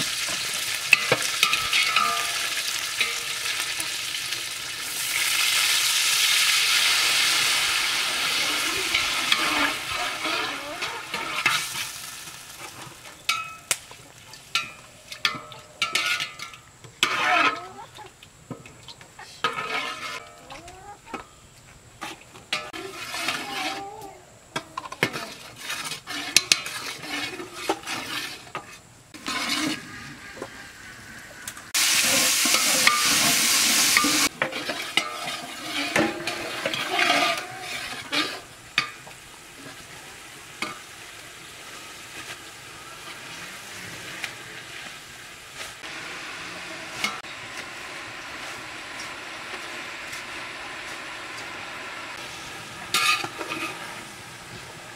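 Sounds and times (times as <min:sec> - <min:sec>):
water sizzling in hot pot: 0:00.0 - 0:17.9, 0:31.6 - 0:54.9
ladle scraping pot: 0:00.3 - 0:03.6, 0:08.2 - 0:11.8, 0:14.3 - 0:17.8, 0:19.4 - 0:21.2, 0:22.0 - 0:24.0, 0:24.6 - 0:30.7, 0:31.7 - 0:39.0, 0:52.9 - 0:54.1.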